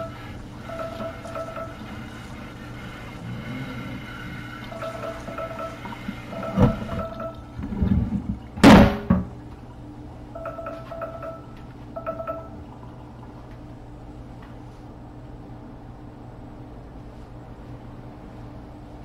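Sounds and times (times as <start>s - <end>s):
faucet running into metal sink: 0.0s - 3.4s, 4.0s - 9.4s
cutting board knocking and clattering: 8.6s - 9.3s.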